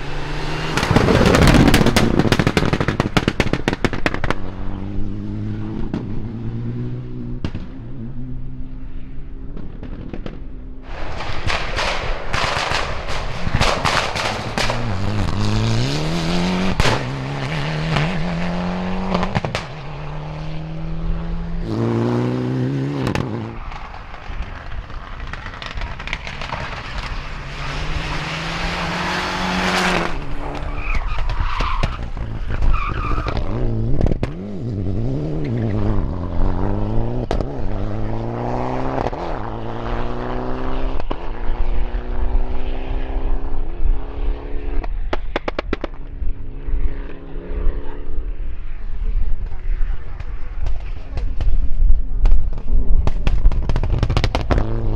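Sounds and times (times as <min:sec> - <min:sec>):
rally car engine revving: 0:00.0 - 0:08.8, 0:11.5 - 0:48.4, 0:52.5 - 0:54.9
exhaust pops and crackles: 0:00.7 - 0:04.7, 0:07.4 - 0:07.9, 0:09.5 - 0:18.3, 0:19.1 - 0:19.8, 0:23.0 - 0:34.4, 0:37.2 - 0:37.8, 0:40.8 - 0:41.5, 0:44.8 - 0:46.3, 0:49.3 - 0:54.9
gravel spraying from tyres: 0:23.5 - 0:33.4.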